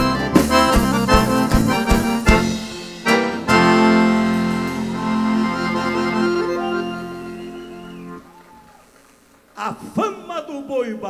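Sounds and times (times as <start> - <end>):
live band with accordion playing: 0.0 - 8.5.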